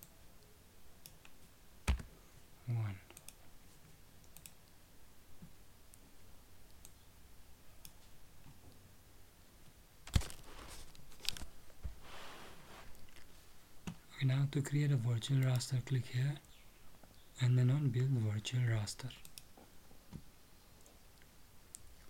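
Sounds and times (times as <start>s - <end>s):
computer mouse clicks: 3.1s - 3.4s, 4.2s - 4.6s, 19.2s - 19.5s.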